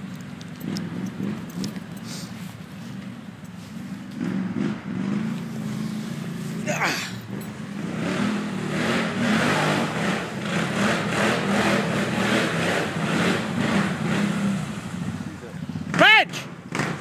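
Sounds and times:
quad bike engines running: 0.0s - 17.0s
pulsing rush through deep mud: 4.2s - 17.0s.

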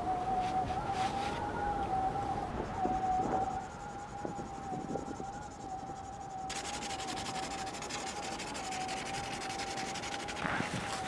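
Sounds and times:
high-pitched whine: 0.0s - 11.0s
marker scratching on cardboard: 6.5s - 11.0s.

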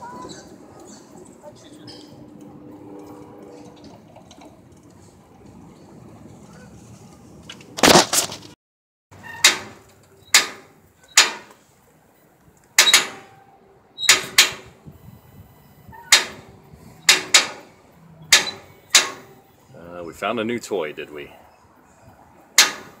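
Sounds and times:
brake ratchet metallic clanks: 9.2s - 11.6s, 12.7s - 13.4s, 14.0s - 14.8s, 15.9s - 19.5s, 22.5s - 23.0s.

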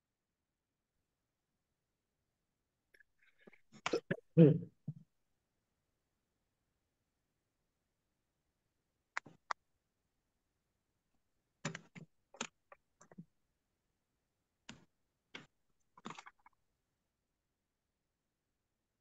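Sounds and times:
keyboard and mouse clicks: 11.6s - 13.2s, 14.7s - 16.6s.

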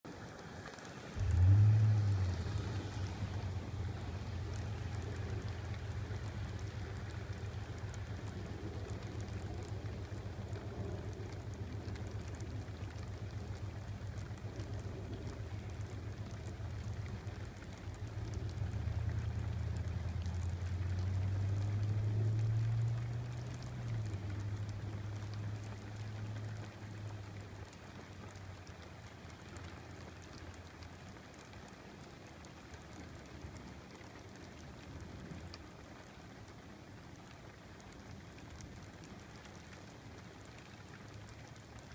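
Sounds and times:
rain falling steadily: 0.0s - 41.9s
low rumble of thunder: 1.2s - 26.6s.

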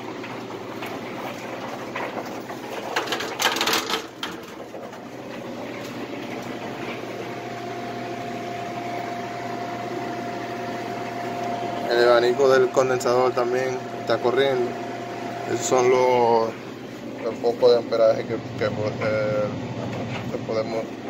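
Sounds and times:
condenser fan humming: 0.0s - 21.0s
steady whine: 5.3s - 21.0s.

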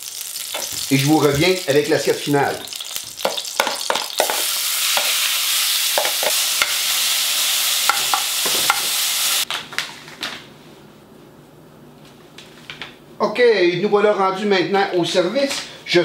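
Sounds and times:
meat sizzling in hot oil: 0.0s - 9.4s.

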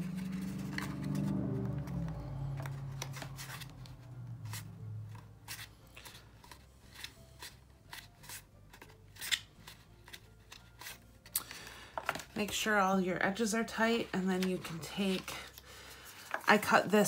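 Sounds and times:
paper rustles and crinkles: 14.0s - 16.9s.

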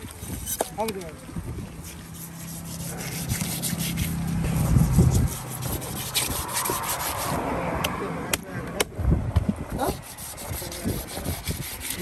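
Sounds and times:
knife scraping fish scales: 0.0s - 0.8s, 1.6s - 7.4s, 9.8s - 12.0s.

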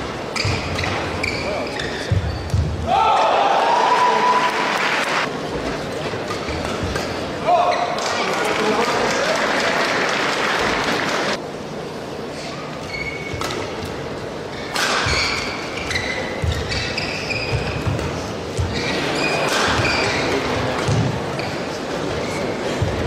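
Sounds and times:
shoes squeaking on court: 0.0s - 2.8s, 12.4s - 13.8s, 14.5s - 23.0s
crowd noise: 0.0s - 23.0s
racket hitting shuttlecock: 14.7s - 16.8s.

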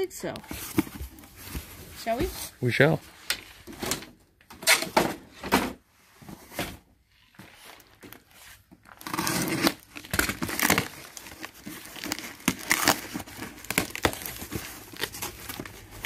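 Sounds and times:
packing tape ripping: 8.8s - 16.0s.

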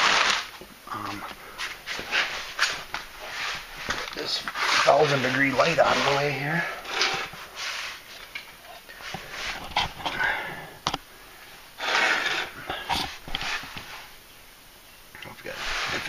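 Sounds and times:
scuffing and handling noise: 1.2s - 10.2s
breathy exhalations: 8.9s - 13.2s.

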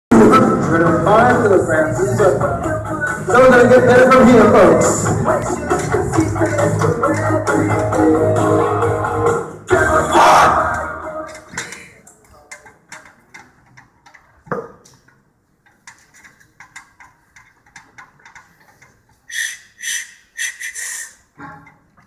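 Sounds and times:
short high-pitched sounds: 19.3s - 21.2s.

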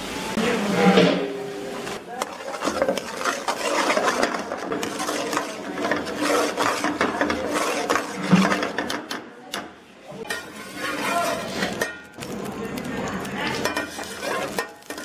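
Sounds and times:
ladle scraping iron pan: 0.6s - 9.2s, 10.2s - 12.4s, 13.3s - 15.0s.

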